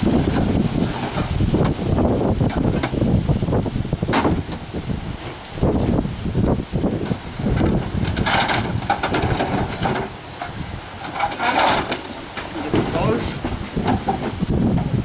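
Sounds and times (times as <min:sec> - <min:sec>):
wind rumbling on microphone: 0:00.0 - 0:15.0
metal parts scraping and clattering: 0:08.0 - 0:14.2.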